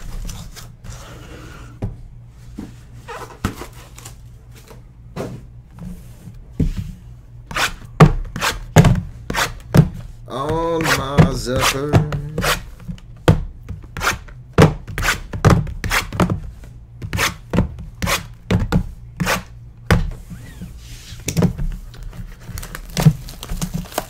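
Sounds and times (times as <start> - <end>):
plastic wrap rubbing: 21.9 - 24.0.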